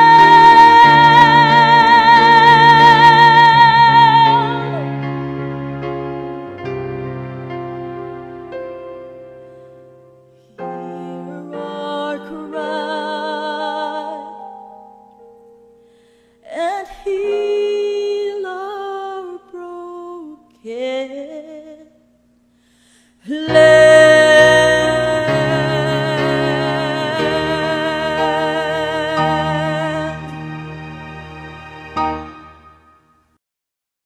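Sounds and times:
woman singing with vibrato: 0.0s - 5.0s, 10.6s - 14.6s, 16.4s - 22.0s, 23.2s - 30.4s
soft backing track: 23.3s - 33.0s.

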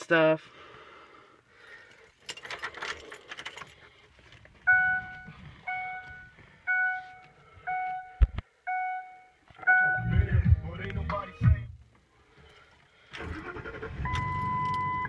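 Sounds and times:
keys jangling: 2.0s - 3.9s
dashboard warning chime: 4.6s - 10.4s, 14.0s - 15.0s.

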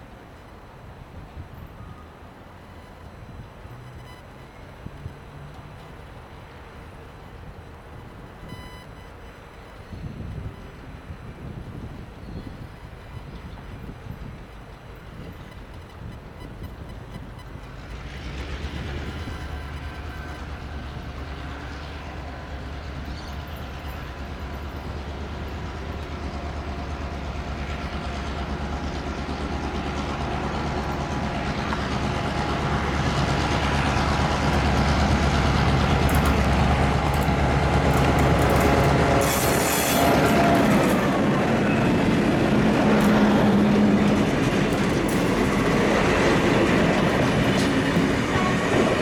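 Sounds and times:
diesel locomotive engine drone: 0.0s - 49.0s.

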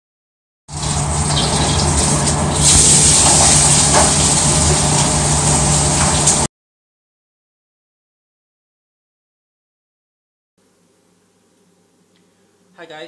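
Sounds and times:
food sizzling in a wok: 0.7s - 6.5s.

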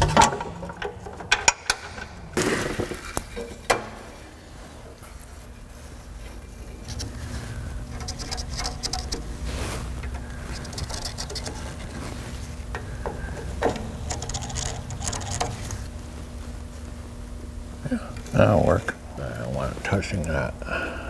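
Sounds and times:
low steady hum: 0.0s - 21.0s
light scrapes and rustles: 4.6s - 12.9s
metal on metal clicks: 12.7s - 15.9s.

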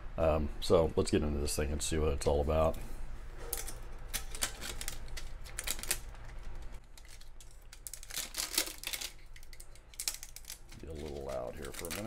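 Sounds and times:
plastic wrap crinkling: 3.6s - 12.0s.

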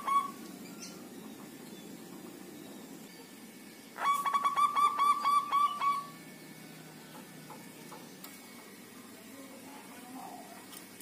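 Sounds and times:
dove cooing: 0.0s - 2.4s, 4.0s - 6.2s.

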